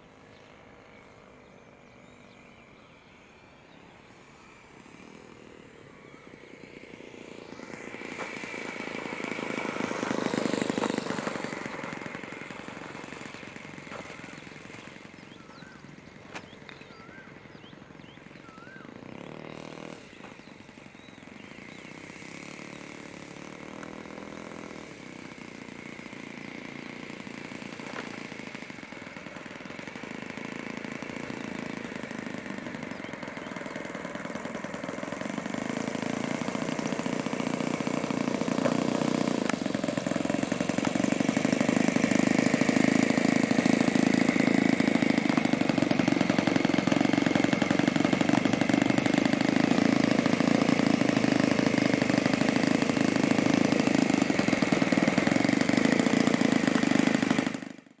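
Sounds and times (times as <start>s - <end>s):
model plane engine idling: 0.0s - 58.0s.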